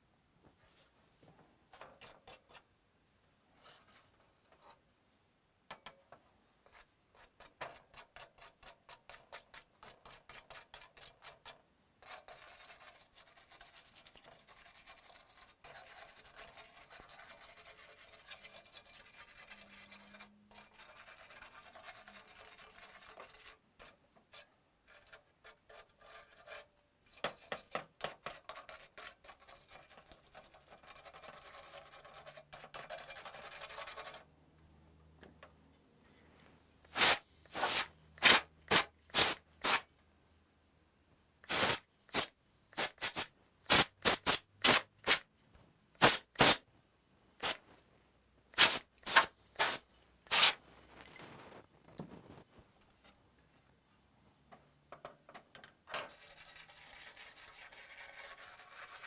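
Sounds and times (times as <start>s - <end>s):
bristle brush scrubbing: 6.7s - 24.5s.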